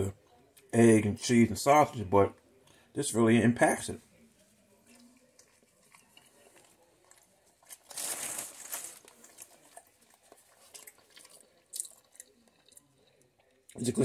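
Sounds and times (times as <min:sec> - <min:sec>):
paper wrapper crinkling: 0:05.4 - 0:12.1.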